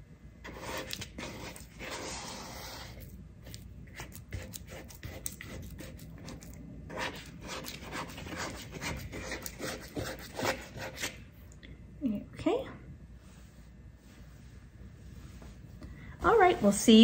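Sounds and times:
sticky dough squelching by hand: 0.5s - 11.2s.

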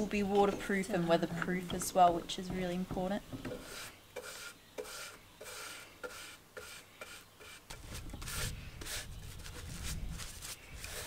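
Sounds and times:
brush strokes on wood: 3.5s - 11.0s.

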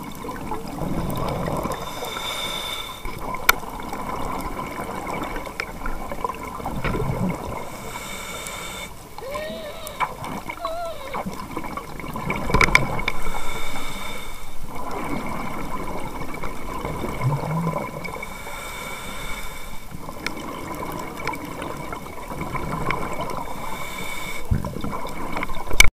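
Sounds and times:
scuba diver breathing underwater: 1.0s - 3.4s, 7.5s - 11.6s, 12.9s - 15.5s, 17.8s - 20.0s, 23.2s - 24.7s.

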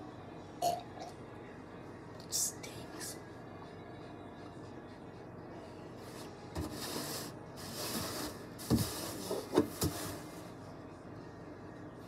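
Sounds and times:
plastic jug rubbing and scraping: 6.0s - 10.5s.

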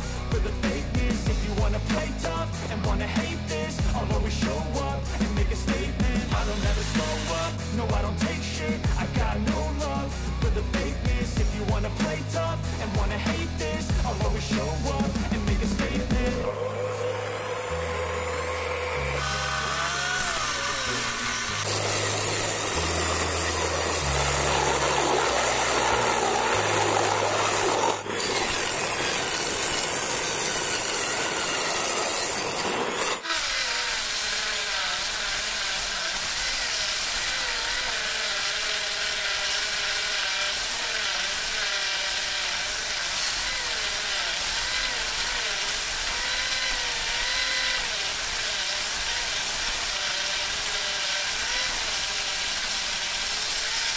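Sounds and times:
music bass line: 0.0s - 16.6s
small saw whining cutting wood: 0.0s - 53.9s.

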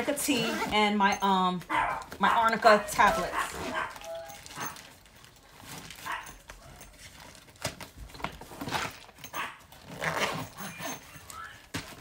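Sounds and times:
dog barking and whining: 1.7s - 4.9s, 6.0s - 7.0s, 9.2s - 11.6s.

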